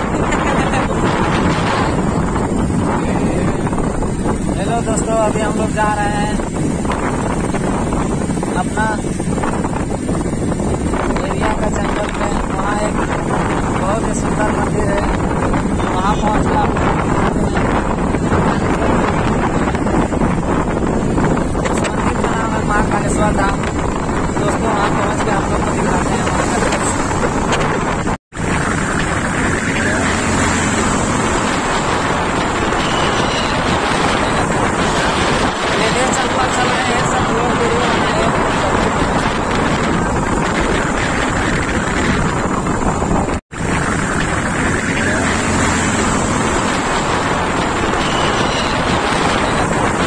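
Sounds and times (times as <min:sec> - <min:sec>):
motorcycle engine: 0:00.0 - 0:50.0
road noise: 0:00.0 - 0:50.0
wind rushing over microphone: 0:00.0 - 0:50.0
motorbike engine: 0:25.4 - 0:50.0.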